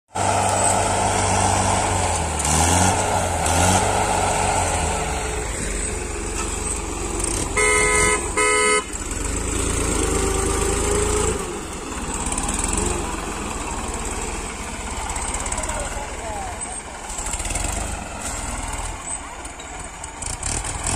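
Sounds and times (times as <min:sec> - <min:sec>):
diesel tractor engines running: 0:00.1 - 0:20.9
horn blasts: 0:07.5 - 0:09.0.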